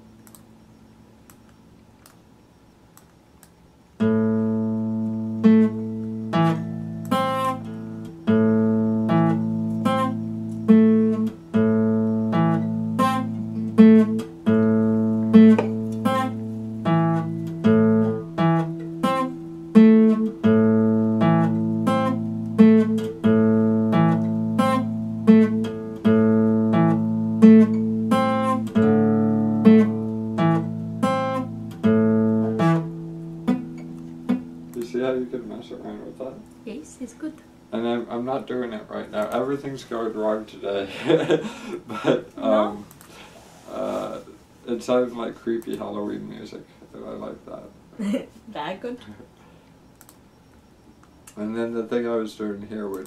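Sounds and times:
fingerstyle acoustic guitar: 0:04.0 - 0:36.7.

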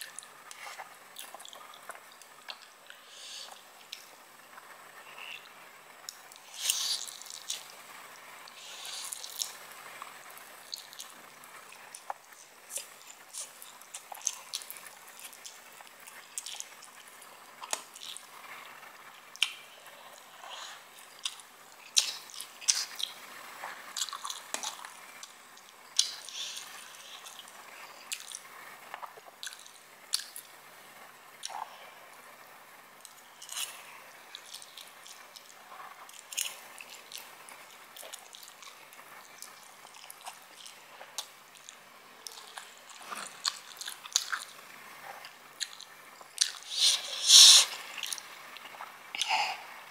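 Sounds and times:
chewing: 0:00.0 - 0:04.1, 0:05.0 - 0:07.8, 0:08.5 - 0:30.5, 0:33.0 - 0:49.6
lip smacks and mouth clicks: 0:00.0 - 0:04.1, 0:06.1 - 0:07.8, 0:08.5 - 0:10.1, 0:10.7 - 0:17.0, 0:17.6 - 0:18.3, 0:24.0 - 0:30.5, 0:33.0 - 0:44.6, 0:45.2 - 0:49.3
noodle slurping: 0:46.6 - 0:48.2.

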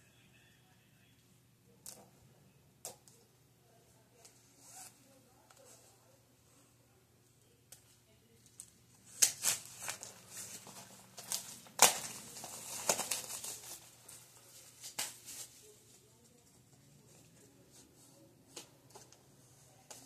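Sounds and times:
plastic wrapping tearing and crinkling: 0:08.6 - 0:15.6.

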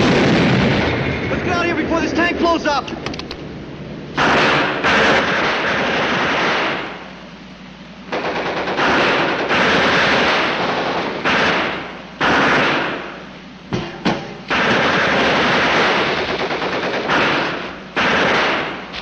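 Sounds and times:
machine-gun fire bursts: 0:04.2 - 0:07.0, 0:08.1 - 0:13.2, 0:14.5 - 0:19.0.

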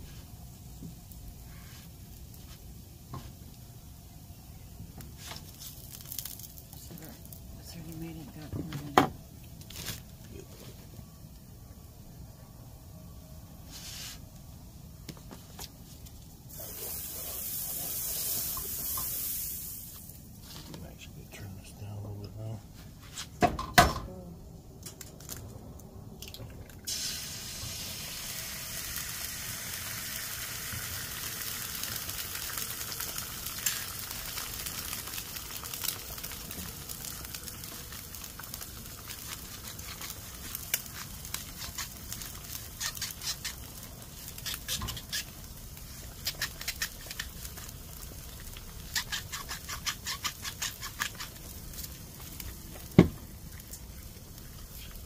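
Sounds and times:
food sizzling: 0:00.0 - 0:10.4, 0:16.4 - 0:20.6, 0:26.7 - 0:55.0.

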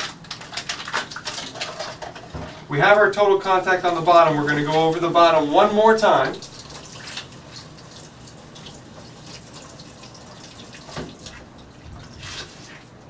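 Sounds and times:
tap water running into sink: 0:06.4 - 0:12.4
water splashing and dripping: 0:06.4 - 0:12.7.

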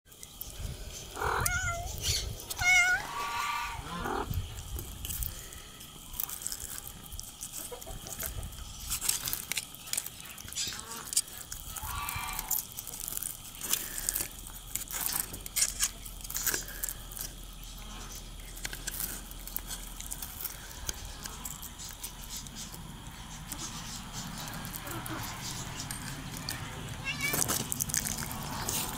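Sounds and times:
cat meowing: 0:01.2 - 0:04.3, 0:26.6 - 0:27.5.

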